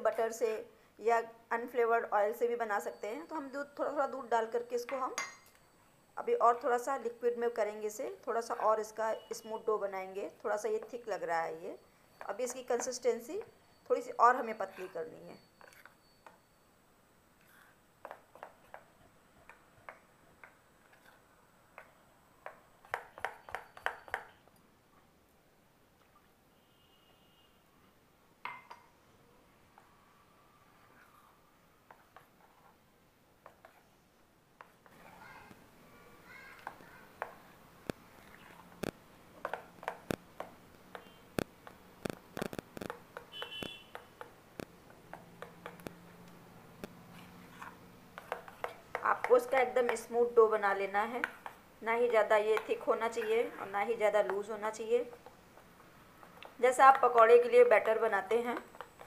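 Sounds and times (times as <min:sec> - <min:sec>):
spoon clinking on metal bowl: 0:04.8 - 0:05.6
wet batter mixing: 0:36.5 - 0:59.0.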